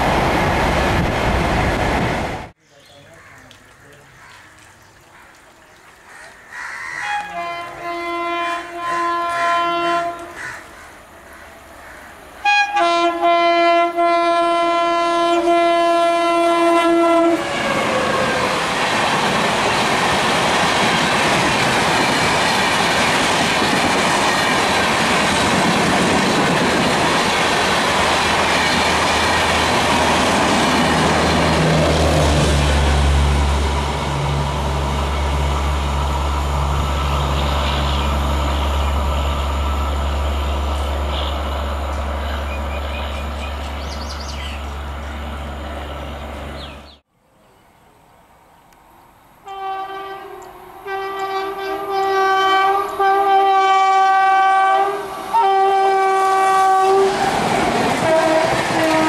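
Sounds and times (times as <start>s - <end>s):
locomotive horn: 6.9s - 10.4s, 12.4s - 18.6s, 49.4s - 57.2s, 58.0s - 59.0s
train coaches clattering past: 17.0s - 47.0s, 49.4s - 59.0s.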